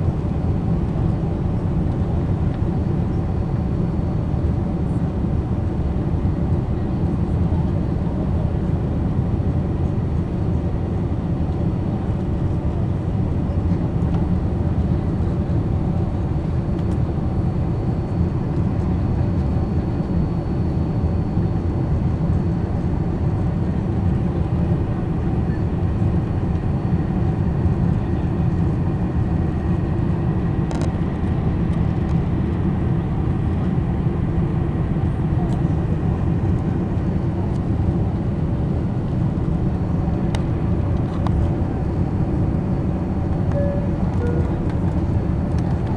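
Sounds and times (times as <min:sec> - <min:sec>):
jet engine cabin noise: 0:00.0 - 0:45.9
faint high whine: 0:43.4 - 0:45.6.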